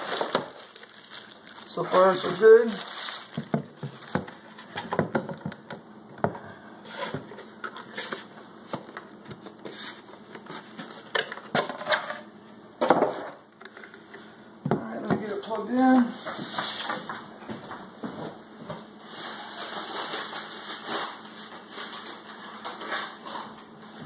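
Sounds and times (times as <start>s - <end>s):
rustling and scraping: 0.0s - 5.1s, 6.8s - 12.3s, 15.4s - 18.4s, 19.0s - 24.0s.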